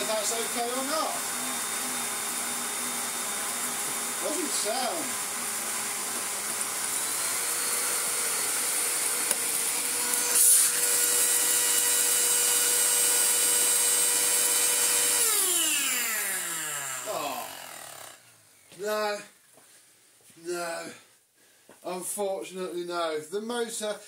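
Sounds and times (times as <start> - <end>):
vacuum cleaner motor whining: 0.0 - 18.2.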